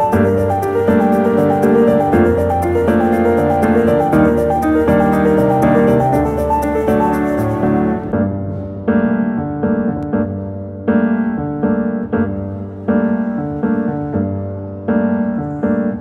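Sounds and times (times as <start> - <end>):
slow piano chords: 0.0 - 16.0.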